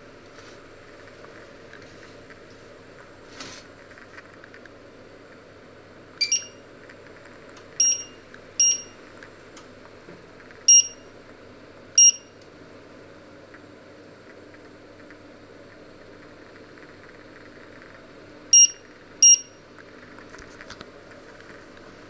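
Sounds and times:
cooktop beeping: 6.2 - 6.6, 7.8 - 9.0, 18.6 - 19.5.

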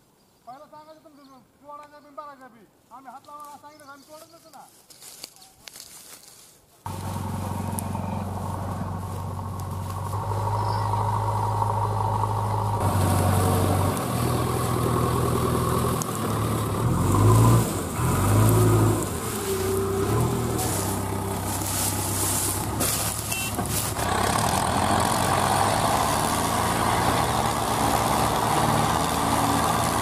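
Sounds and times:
diesel engine revving: 6.9 - 30.0.

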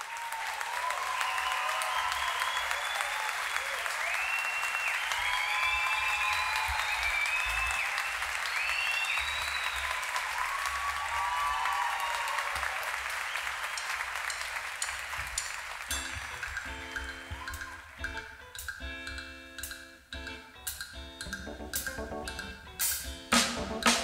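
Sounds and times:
whistles and cheers: 0.0 - 14.6, 15.9 - 17.8
audience applauding: 0.0 - 18.1
guitar plucking notes: 21.2 - 24.0.

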